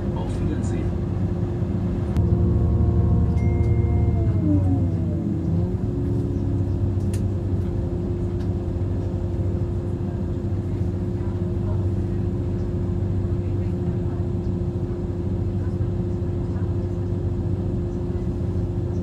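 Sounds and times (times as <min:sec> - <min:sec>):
train rumble and hum: 0:00.0 - 0:19.0
train drive tones gliding down: 0:02.2 - 0:09.4.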